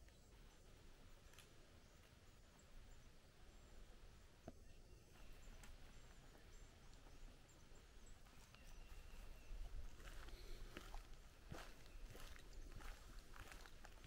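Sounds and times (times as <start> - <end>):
faint high bird chirps: 4.4 - 14.0
footsteps on dry leaves: 8.3 - 14.0.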